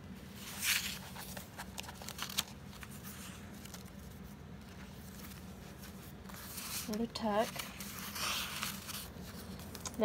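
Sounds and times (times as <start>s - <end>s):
low steady hum: 0.0s - 10.0s
paper pages rustling: 0.3s - 10.0s.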